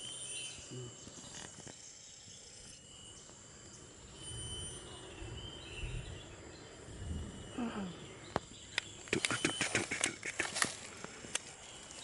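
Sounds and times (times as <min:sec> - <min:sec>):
high-pitched insect drone: 0:00.0 - 0:08.3
faint whistled bird calls: 0:04.1 - 0:06.3, 0:07.1 - 0:10.6
low rumbling: 0:05.0 - 0:08.3.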